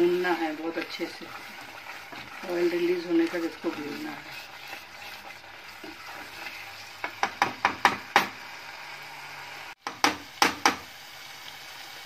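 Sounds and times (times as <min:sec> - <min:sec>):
paste frying hiss: 0:00.0 - 0:12.0
spatula knocking on pot: 0:07.0 - 0:08.4, 0:09.8 - 0:10.8.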